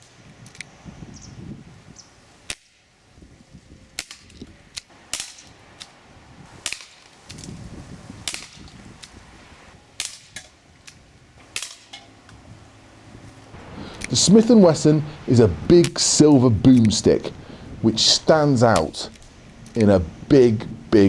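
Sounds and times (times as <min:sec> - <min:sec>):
air pistol shots popping: 0:02.5 - 0:02.9, 0:04.0 - 0:06.0, 0:06.6 - 0:07.5, 0:08.2 - 0:09.2, 0:10.0 - 0:12.0.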